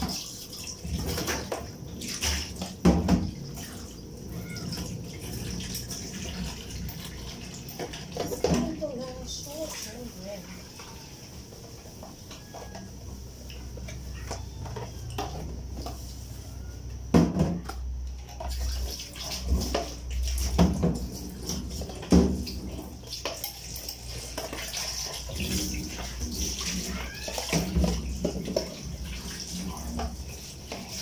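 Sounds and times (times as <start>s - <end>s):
running water in kitchen: 0.0s - 31.0s
pots and dishes clinking: 7.6s - 8.8s, 10.8s - 16.1s, 17.0s - 31.0s.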